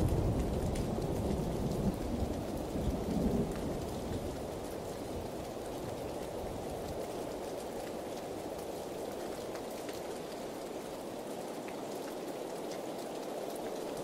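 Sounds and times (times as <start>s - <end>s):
low thunder rumble: 0.0s - 4.5s
steady rain falling: 0.0s - 14.0s.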